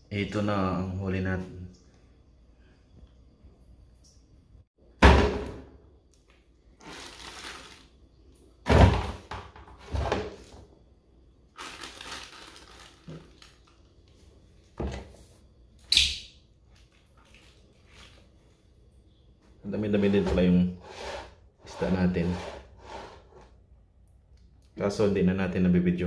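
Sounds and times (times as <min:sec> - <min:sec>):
plastic bag rustling: 0:06.7 - 0:08.0, 0:11.5 - 0:14.0.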